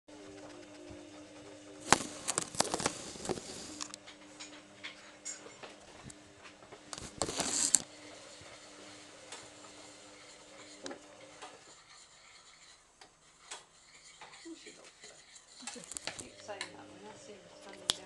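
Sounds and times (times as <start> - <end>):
fur rubbing on microphone: 1.8 - 3.8, 7.0 - 7.8.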